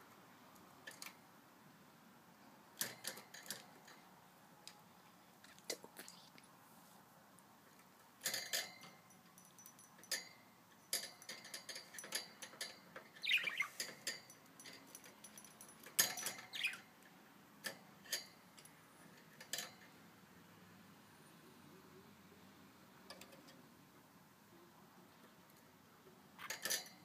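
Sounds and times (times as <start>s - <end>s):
bird clicking and tapping in cage: 0.8s - 1.2s, 2.8s - 4.0s, 8.2s - 20.0s, 23.1s - 23.6s, 26.4s - 27.0s
budgerigar chirp: 13.2s - 13.8s, 16.5s - 16.8s.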